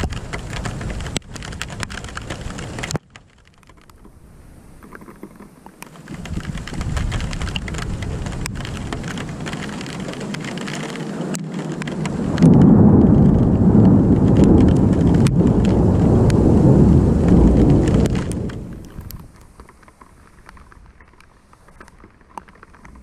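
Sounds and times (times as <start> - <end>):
rain falling: 0.0 - 4.8, 5.5 - 23.0
rolling thunder: 6.3 - 19.2.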